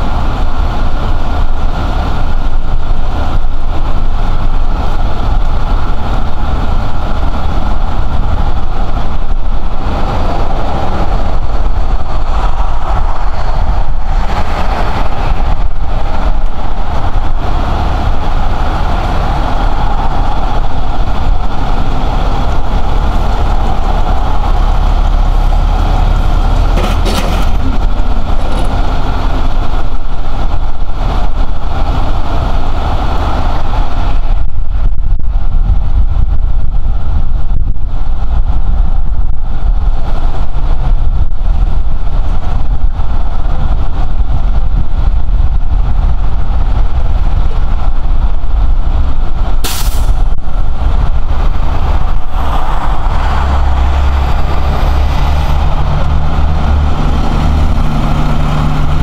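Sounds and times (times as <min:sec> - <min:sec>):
truck engine idling: 0:00.0 - 0:34.0.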